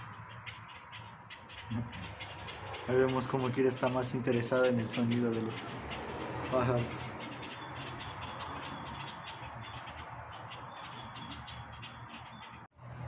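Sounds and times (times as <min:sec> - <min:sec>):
birds calling: 0:00.0 - 0:12.7.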